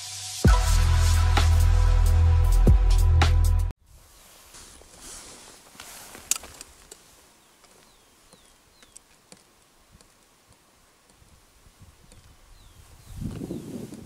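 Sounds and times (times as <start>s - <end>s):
bird chirps: 7.4s - 9.1s, 12.0s - 13.6s
fishing gear clicks and taps: 7.6s - 11.2s.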